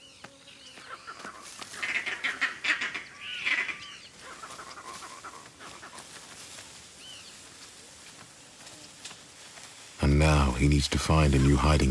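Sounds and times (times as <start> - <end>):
animal calls: 0.6 - 7.4.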